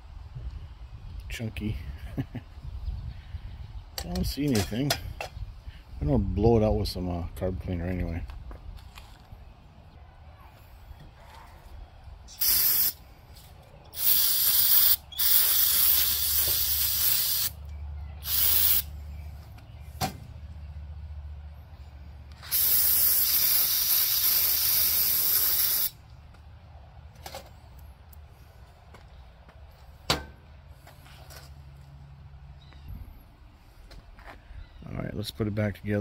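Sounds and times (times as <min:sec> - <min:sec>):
aerosol spray hissing: 0:12.3 - 0:13.0, 0:14.0 - 0:17.6, 0:18.2 - 0:18.9, 0:22.4 - 0:26.0.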